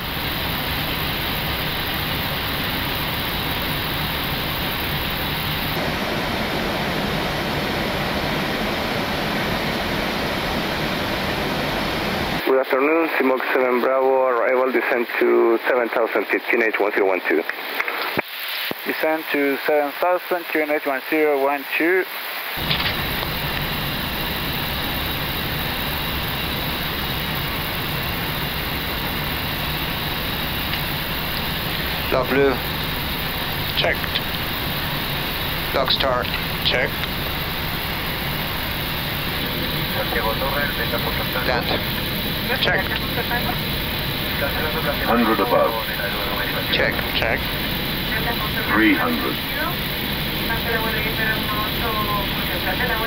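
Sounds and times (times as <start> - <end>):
airflow and engine hum: 0.0 - 12.4, 22.6 - 53.0
airliner cockpit rushing noise: 22.6 - 53.0.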